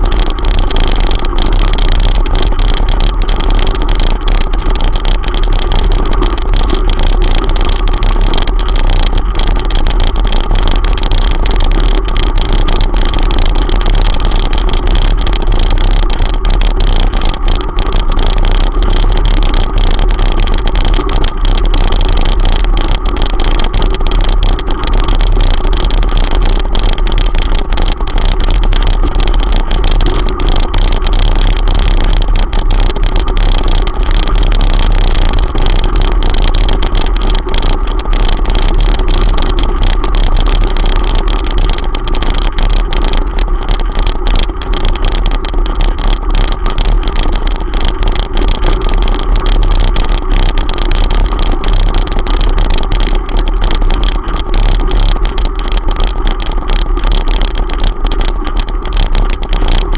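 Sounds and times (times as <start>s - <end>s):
rumble and rattle on gravel: 0.0s - 59.9s.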